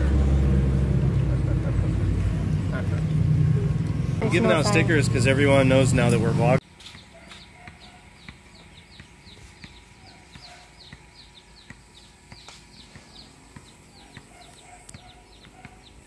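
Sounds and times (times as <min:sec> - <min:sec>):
baby chicks peeping: 0:06.8 - 0:16.0.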